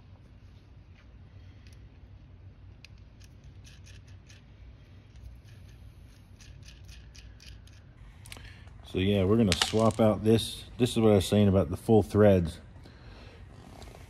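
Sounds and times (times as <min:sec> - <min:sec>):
low steady hum: 0:00.0 - 0:14.0
metal nut clicking and scraping: 0:01.6 - 0:08.7.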